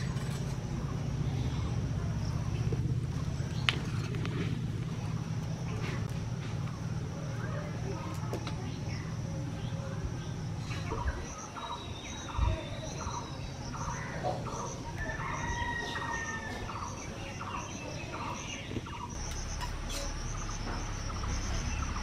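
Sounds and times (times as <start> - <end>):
high pulsing insect call: 0.0 - 22.0
bird chirping: 8.6 - 22.0.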